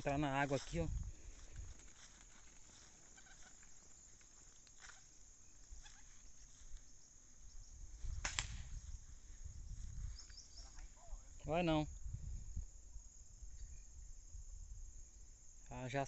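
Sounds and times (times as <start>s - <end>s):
footsteps through wet grass: 0.0s - 6.9s
high insect hum: 0.0s - 16.0s
sharp click: 8.2s - 8.6s.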